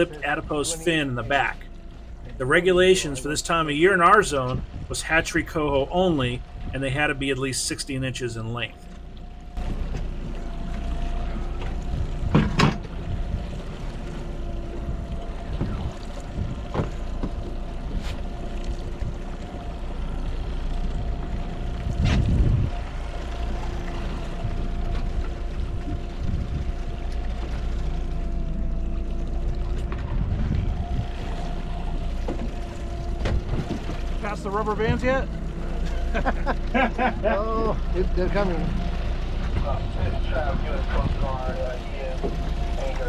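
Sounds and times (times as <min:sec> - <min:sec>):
outboard motor running: 0:00.0 - 0:43.0
knocks on boat: 0:11.6 - 0:13.0, 0:16.6 - 0:17.6, 0:33.2 - 0:34.0.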